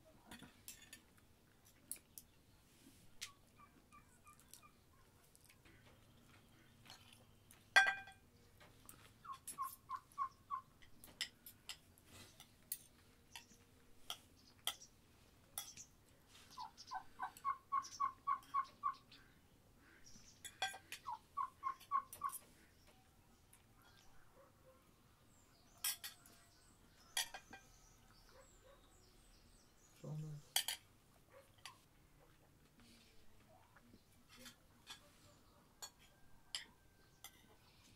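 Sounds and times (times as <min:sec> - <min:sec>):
bird calling repeated notes: 0:16.6 - 0:19.1, 0:21.1 - 0:22.3.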